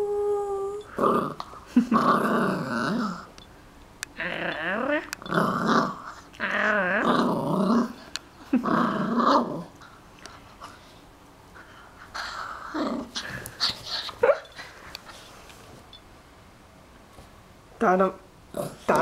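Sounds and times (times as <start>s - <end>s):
small dog growling: 0.8s - 3.3s, 4.2s - 10.0s, 12.2s - 14.5s.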